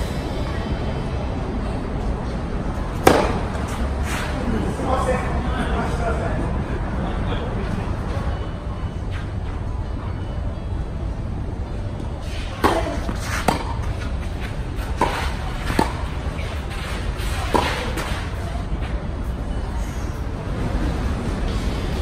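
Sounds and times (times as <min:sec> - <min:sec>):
tennis balls struck by rackets: 0:02.9 - 0:03.8, 0:12.5 - 0:16.6, 0:17.2 - 0:18.2.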